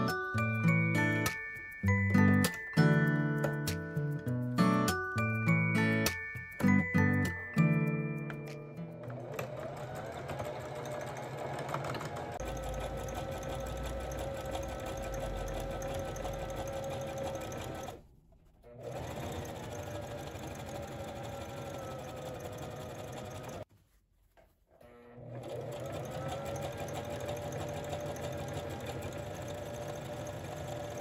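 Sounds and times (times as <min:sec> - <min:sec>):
sewing machine running: 0:09.0 - 0:18.0, 0:18.7 - 0:23.6, 0:25.0 - 0:31.0.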